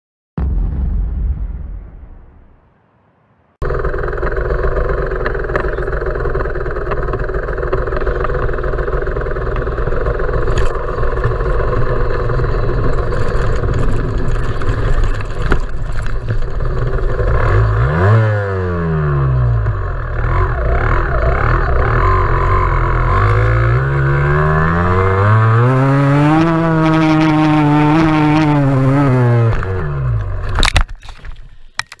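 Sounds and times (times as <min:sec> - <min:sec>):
dirt bike engine revving: 0:16.5 - 0:30.5.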